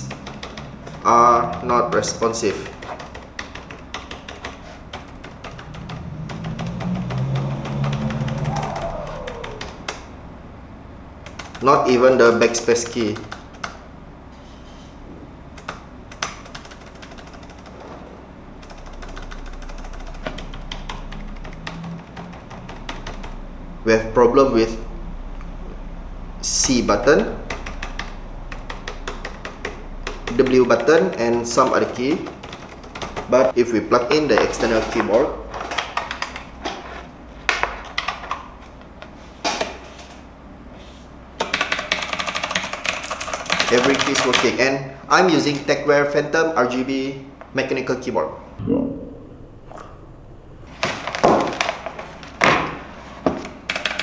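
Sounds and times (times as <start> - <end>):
knocks and clicks: 0.0 - 10.0
mechanical keyboard typing: 0.0 - 10.1, 11.2 - 13.8, 15.5 - 17.8, 18.6 - 23.4, 27.2 - 33.6, 34.3 - 36.5, 37.8 - 38.4, 41.4 - 44.6, 53.6 - 54.0.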